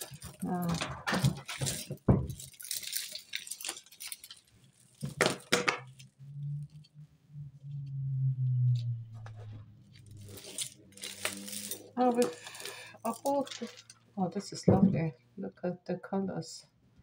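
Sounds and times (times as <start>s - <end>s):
low steady hum: 5.9s - 16.0s
beads and chains clinking: 10.0s - 14.0s.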